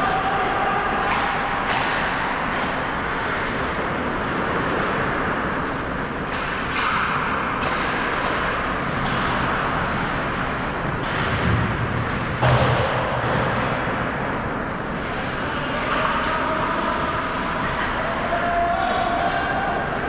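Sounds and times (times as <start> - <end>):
skates scraping on ice: 1.2 - 12.7.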